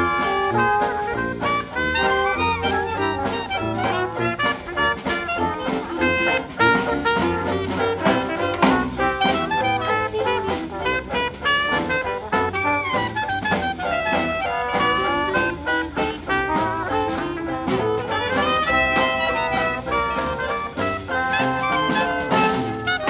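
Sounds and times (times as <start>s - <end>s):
jazz band playing: 0.0s - 23.0s
tuba bass line: 0.0s - 23.0s.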